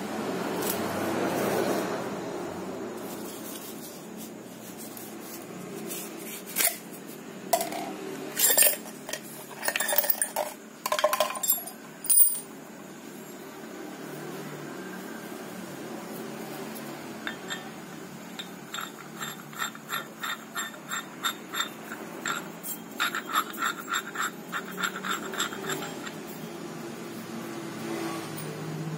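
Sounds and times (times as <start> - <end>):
metal parts clinking: 7.6 - 12.5, 17.2 - 17.8, 18.4 - 26.3.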